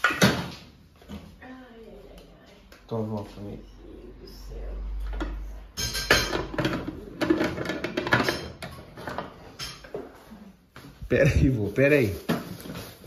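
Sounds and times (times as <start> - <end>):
dishes and cutlery clattering: 0.0 - 0.6, 5.1 - 10.2.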